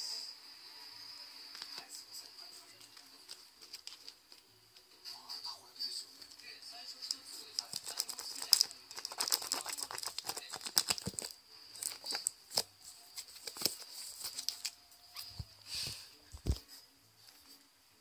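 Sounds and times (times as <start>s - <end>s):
kitten claws scratching cardboard box: 7.7s - 11.3s.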